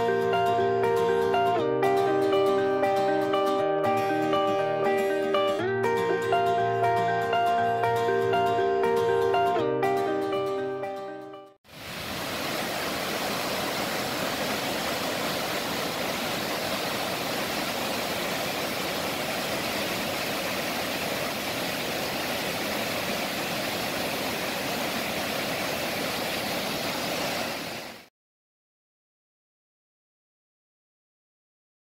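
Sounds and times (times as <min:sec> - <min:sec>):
waterfall rushing: 0:11.7 - 0:28.1.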